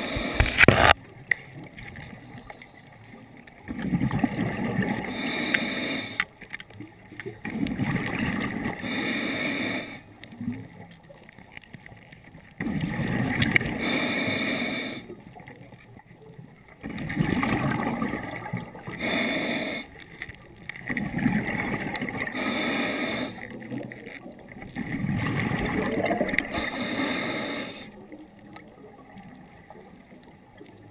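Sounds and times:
regulator inhaling hiss: 0.0s - 0.9s, 5.0s - 6.3s, 8.8s - 10.1s, 13.6s - 15.1s, 18.8s - 20.0s, 22.2s - 23.5s, 26.4s - 28.0s
regulator exhaled bubbles rumbling: 3.6s - 5.2s, 7.2s - 8.9s, 12.6s - 13.9s, 16.8s - 19.8s, 20.8s - 27.0s.

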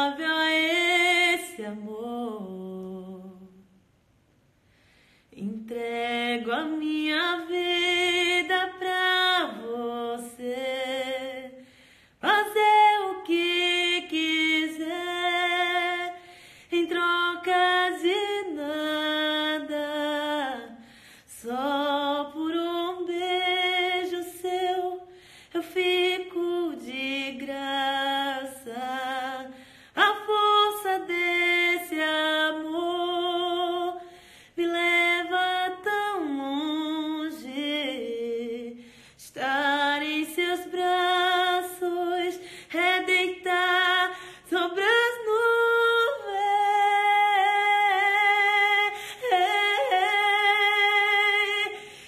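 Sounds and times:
woman singing a cappella: 0.0s - 3.9s, 5.3s - 52.0s
short breaths: 4.6s - 5.4s, 11.6s - 12.2s, 16.2s - 16.7s, 20.8s - 21.3s, 25.1s - 25.6s, 29.5s - 30.0s, 34.0s - 34.6s, 38.8s - 39.2s, 42.4s - 42.7s, 44.1s - 44.5s, 49.0s - 49.2s, 51.8s - 52.0s.

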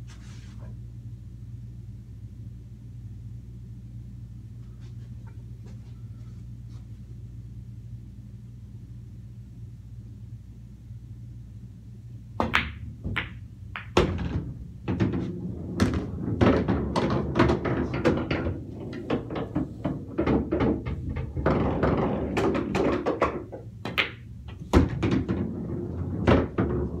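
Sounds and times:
pool balls clacking: 12.4s - 27.0s.

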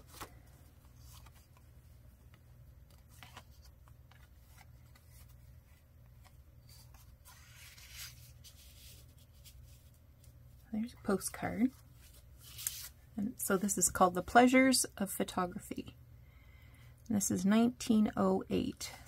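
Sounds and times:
paper rustling: 0.0s - 10.4s, 11.6s - 13.0s
low steady hum: 0.0s - 19.0s.

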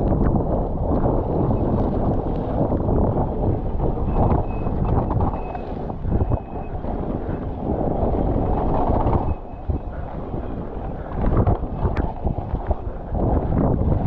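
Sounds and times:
bike knocking and rattling: 0.0s - 14.0s
wind buffeting microphone: 0.0s - 14.0s
faint thin whine: 3.8s - 7.4s, 8.5s - 13.1s.

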